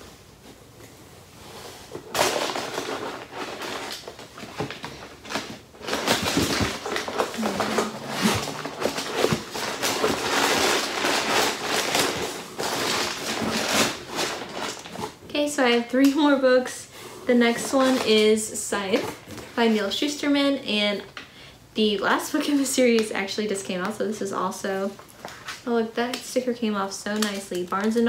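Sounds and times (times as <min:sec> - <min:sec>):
packaging rustling and crinkling: 0:01.8 - 0:15.2, 0:27.1 - 0:28.0.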